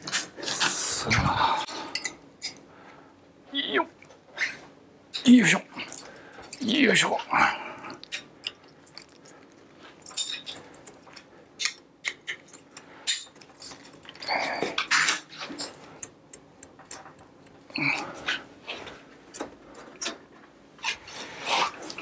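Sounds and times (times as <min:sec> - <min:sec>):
metal bicycle parts clinking: 0:10.0 - 0:10.6.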